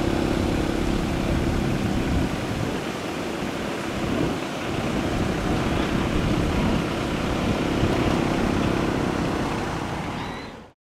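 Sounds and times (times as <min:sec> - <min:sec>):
helicopter rotor and turbine: 0:00.0 - 0:10.8.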